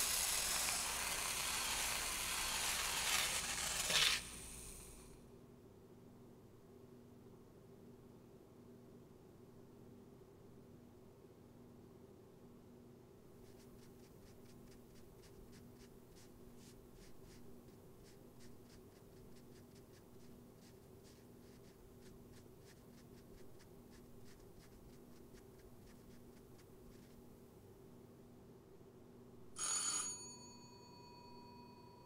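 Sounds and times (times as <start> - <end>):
cotton swab scratching canvas: 0.0 - 4.9, 13.3 - 27.4
low room tone hum: 0.0 - 29.6.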